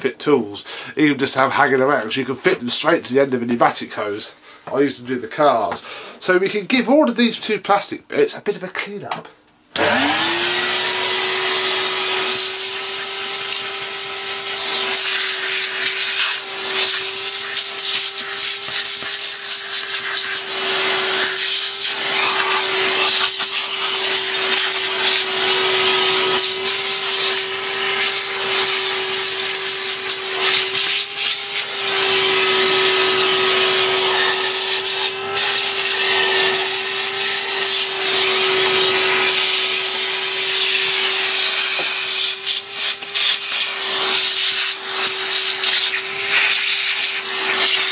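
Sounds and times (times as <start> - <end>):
vacuum cleaner running: 9.8 - 47.9.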